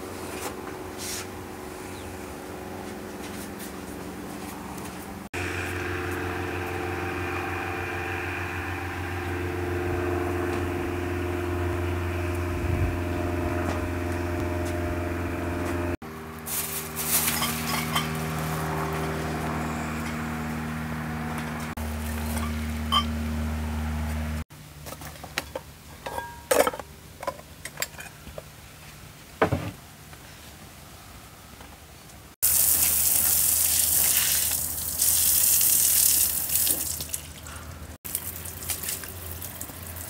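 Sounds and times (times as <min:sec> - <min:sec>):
low mechanical hum: 0:00.0 - 0:40.0
dishes clinking on glass table: 0:26.0 - 0:28.1.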